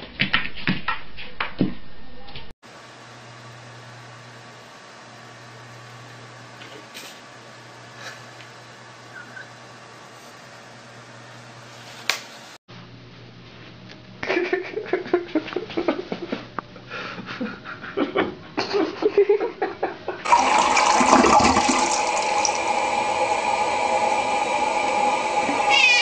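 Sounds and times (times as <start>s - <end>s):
water splashing: 20.3s - 22.8s.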